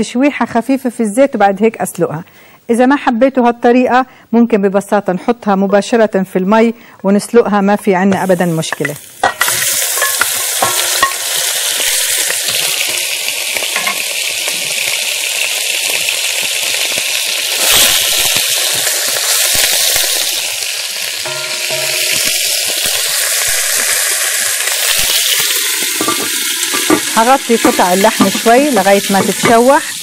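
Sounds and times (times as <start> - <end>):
meat sizzling in hot oil: 8.2 - 30.0.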